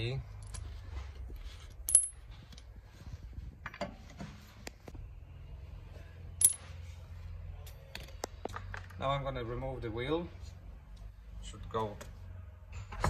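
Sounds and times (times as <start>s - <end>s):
metal bolts clinking: 1.8s - 2.3s, 6.4s - 6.7s.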